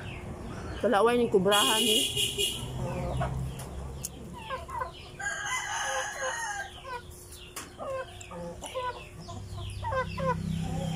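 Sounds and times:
chickens clucking: 0:02.7 - 0:10.9
rooster crowing: 0:05.2 - 0:06.8.

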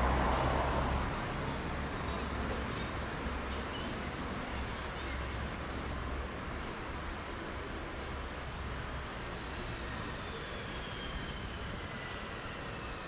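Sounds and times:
traffic hum: 0:00.0 - 0:09.4.

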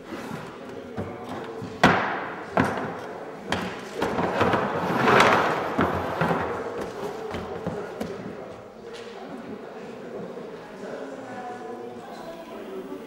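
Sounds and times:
chair scraping on floor: 0:04.0 - 0:06.7.

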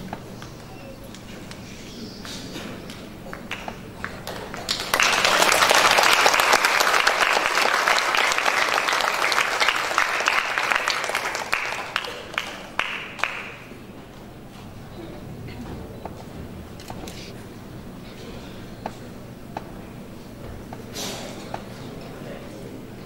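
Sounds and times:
audience applauding: 0:02.9 - 0:13.8.

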